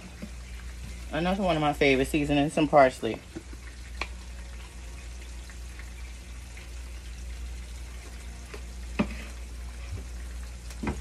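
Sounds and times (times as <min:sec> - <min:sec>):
food sizzling in oil: 0:00.0 - 0:11.0
low steady hum: 0:00.0 - 0:11.0.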